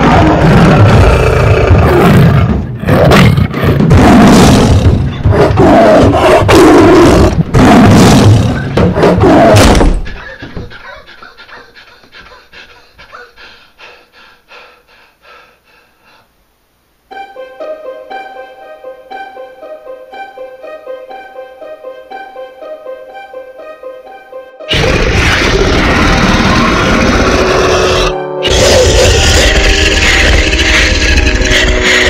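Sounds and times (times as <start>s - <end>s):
large animal roaring and growling: 0.0s - 9.8s, 24.7s - 32.0s.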